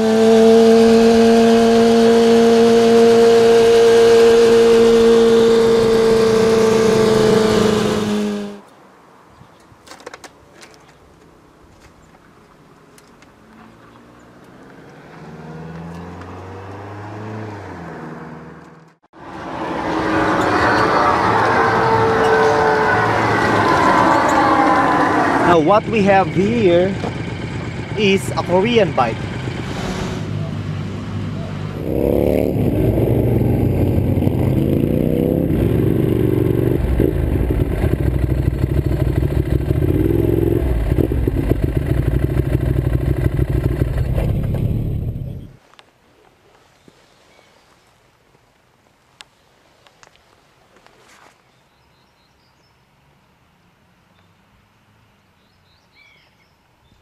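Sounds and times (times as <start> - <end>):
vehicle engine humming: 0.0 - 8.8, 11.2 - 45.6.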